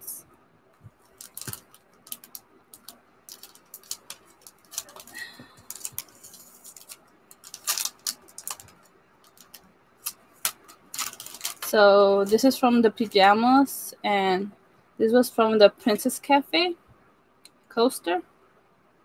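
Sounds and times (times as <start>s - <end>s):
tape peeling: 1.0s - 11.7s
plastic bag crinkling: 1.0s - 12.6s.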